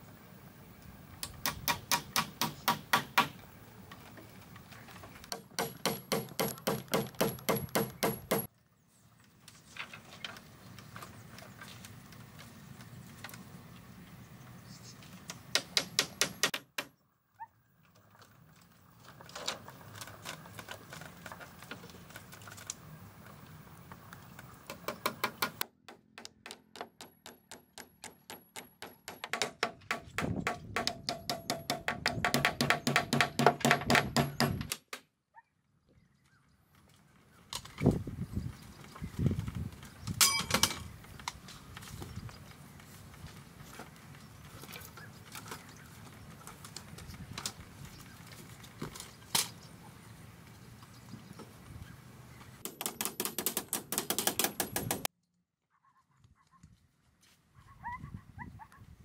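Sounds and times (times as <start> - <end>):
rapid sharp knocks: 5.3 - 8.5, 24.8 - 34.7.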